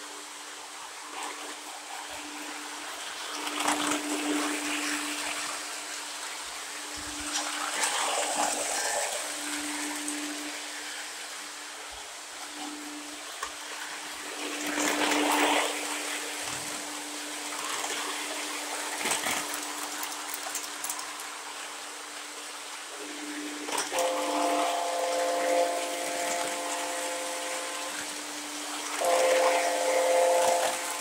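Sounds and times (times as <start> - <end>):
model train wheels rumbling: 23.0 - 31.0.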